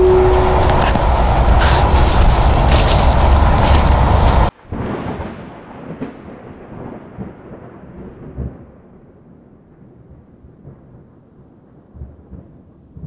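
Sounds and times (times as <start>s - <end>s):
wind buffeting microphone: 0.0s - 5.2s
thunder crack: 0.0s - 13.0s
thunder rumbling: 0.0s - 13.0s.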